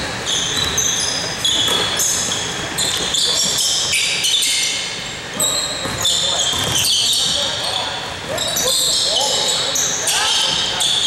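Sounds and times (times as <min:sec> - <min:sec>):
sneakers squeaking on floor: 0:00.0 - 0:11.0
basketball bouncing: 0:00.5 - 0:00.9, 0:05.4 - 0:07.4.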